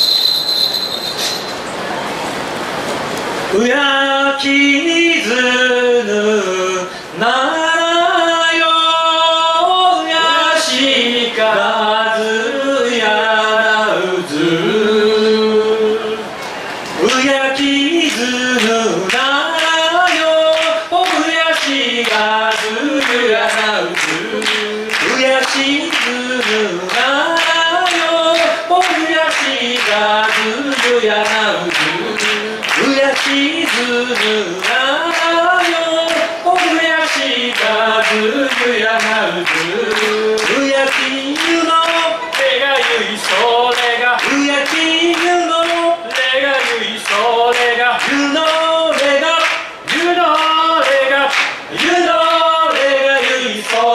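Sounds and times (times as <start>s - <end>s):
a cappella harmony singing: 3.6s - 16.3s, 17.0s - 53.9s
handclaps: 18.6s - 53.9s.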